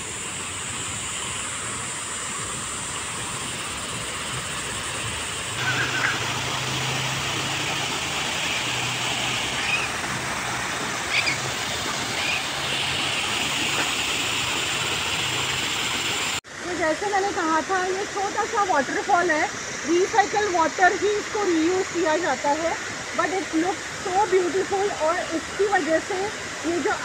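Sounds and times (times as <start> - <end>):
waterfall splashing over rocks: 0.0 - 27.0.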